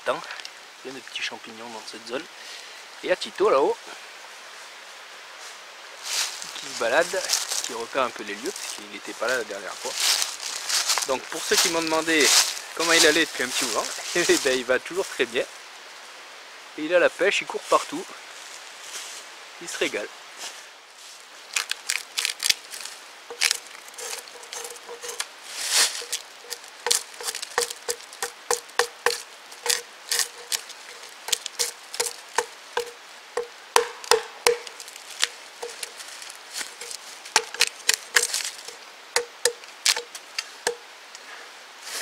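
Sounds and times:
hatchet chopping a log: 0:23.3 - 0:25.3, 0:26.0 - 0:35.9, 0:36.7 - 0:40.8.

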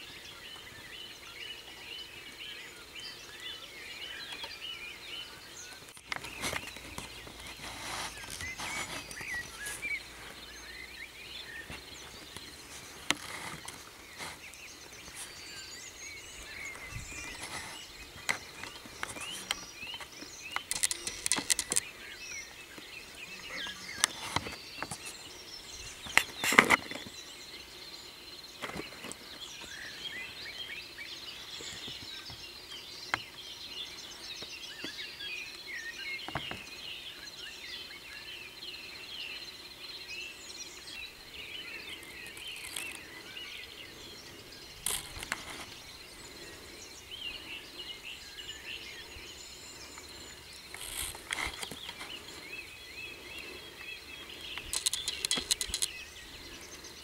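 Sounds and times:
birds chirping: 0:00.0 - 0:57.0
sharp clicks and crackles: 0:18.2 - 0:21.9, 0:44.8 - 0:45.8, 0:54.5 - 0:56.0.

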